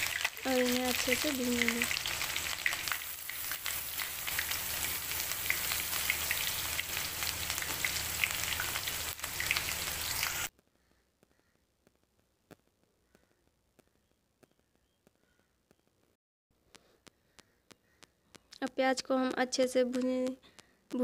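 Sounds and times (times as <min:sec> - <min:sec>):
paste sizzling in hot oil: 0:00.0 - 0:10.5.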